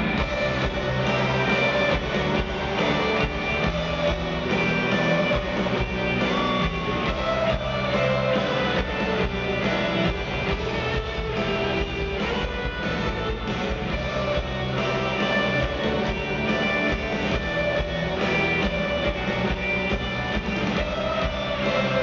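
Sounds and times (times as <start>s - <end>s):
live rock band playing: 0.0s - 22.0s.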